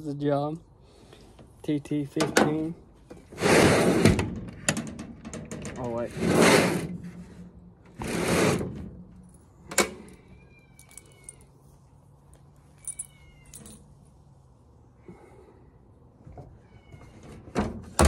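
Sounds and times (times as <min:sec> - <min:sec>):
metal door rattling and clanking: 0:04.0 - 0:06.0.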